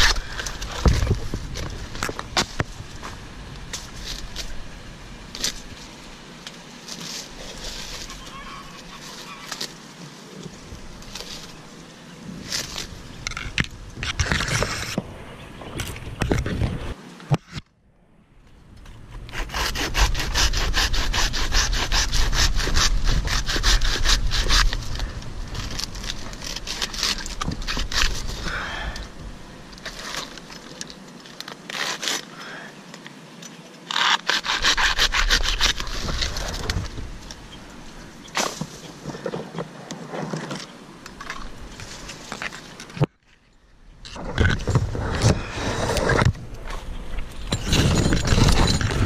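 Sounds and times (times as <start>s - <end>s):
rubbing and scraping strokes: 0.0s - 4.6s, 5.3s - 11.7s, 12.3s - 15.0s, 19.1s - 28.5s, 33.9s - 43.5s, 44.1s - 49.0s
hand saw cutting wood: 19.2s - 25.1s, 33.9s - 36.8s.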